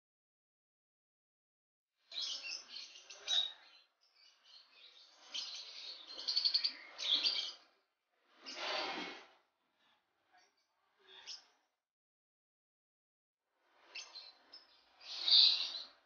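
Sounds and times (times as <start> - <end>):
lovebirds chirping and chattering: 2.1 - 7.8, 10.4 - 11.6, 13.9 - 16.0.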